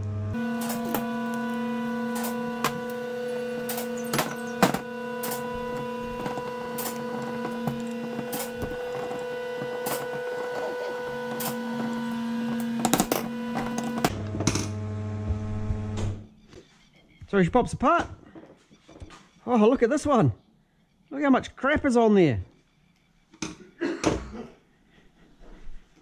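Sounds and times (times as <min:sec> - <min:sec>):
deeper hum: 0:00.0 - 0:16.4
steady pitched hum: 0:00.0 - 0:17.2.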